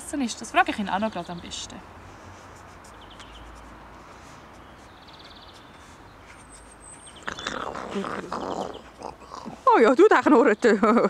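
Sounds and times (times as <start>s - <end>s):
small birds chirping trills: 0.1s - 11.0s.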